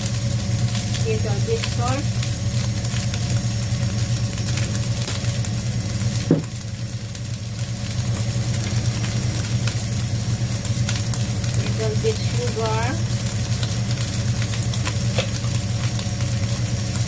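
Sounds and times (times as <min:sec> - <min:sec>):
rice sizzling in a pot: 0:00.0 - 0:17.0
washing machine humming: 0:00.0 - 0:17.0
brief knock: 0:06.3 - 0:06.5.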